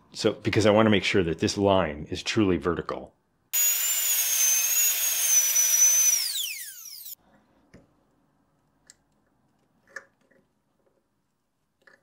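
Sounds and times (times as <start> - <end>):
cordless drill drilling into steel: 3.6 - 7.2.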